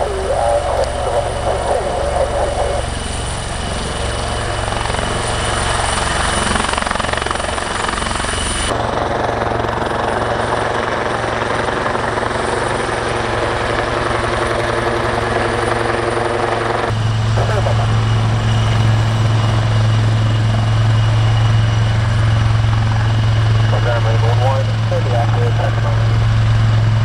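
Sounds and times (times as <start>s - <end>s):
high whine: 0.0s - 8.7s, 16.9s - 27.0s
helicopter turbine and rotor: 0.0s - 27.0s.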